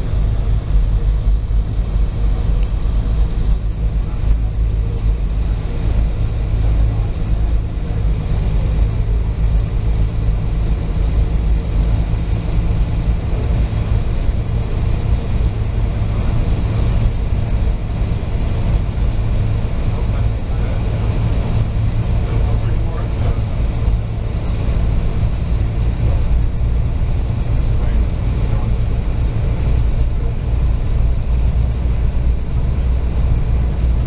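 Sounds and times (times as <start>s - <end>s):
ferry engine rumble: 0.0s - 34.0s.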